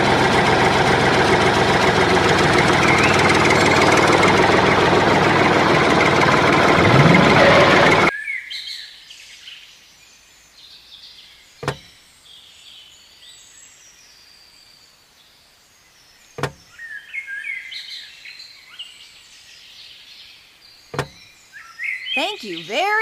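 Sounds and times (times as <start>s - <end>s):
sharp knocks: 11.6s - 11.9s, 21.0s - 21.2s.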